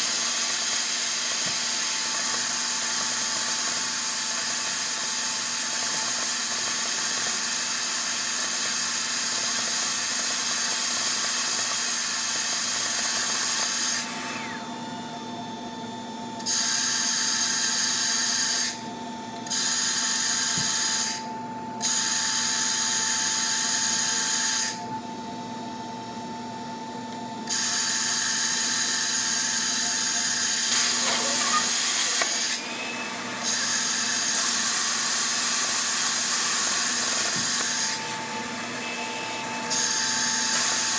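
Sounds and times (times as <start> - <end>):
plasma cutter arc hissing: 0.0 - 14.0, 27.5 - 38.1.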